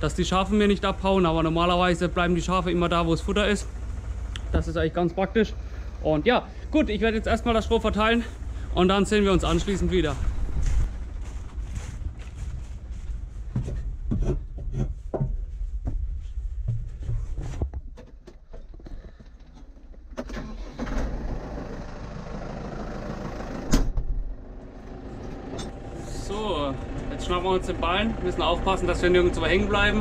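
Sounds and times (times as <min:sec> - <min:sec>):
tractor engine idling: 0:00.0 - 0:14.6, 0:18.4 - 0:30.0
knocks and rustles: 0:10.2 - 0:20.2.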